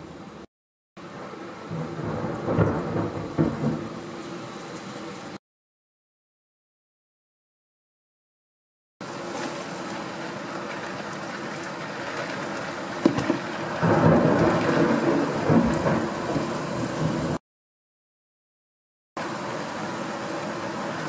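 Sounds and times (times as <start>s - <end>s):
heavy rain hissing: 0.0s - 5.4s, 9.0s - 17.4s, 19.2s - 21.0s
low thunder rumble: 1.6s - 4.5s, 13.2s - 17.4s
thunder crack: 1.7s - 4.1s, 13.0s - 17.4s.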